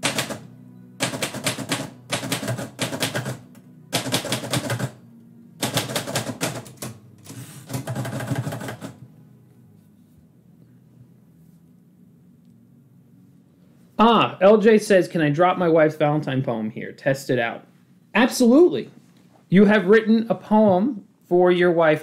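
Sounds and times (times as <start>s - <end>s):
typewriter keystrokes: 0.0s - 0.4s, 1.0s - 3.4s, 4.0s - 5.0s, 5.6s - 9.0s.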